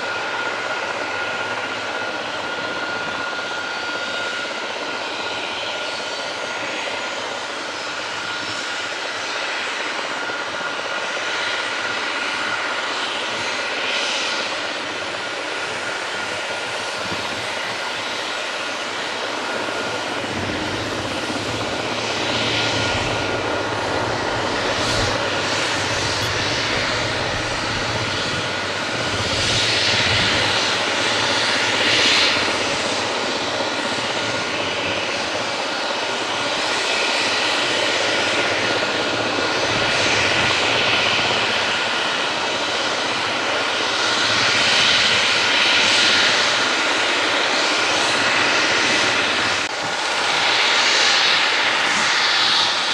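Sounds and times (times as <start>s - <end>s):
helicopter turbine whine: 0.0s - 52.9s
rotor rushing roar: 19.9s - 31.4s.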